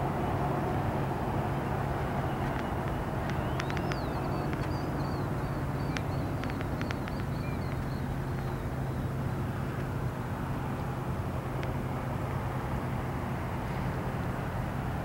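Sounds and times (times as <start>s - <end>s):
distant road traffic rumble: 0.0s - 15.0s
small birds chirping: 2.2s - 9.3s.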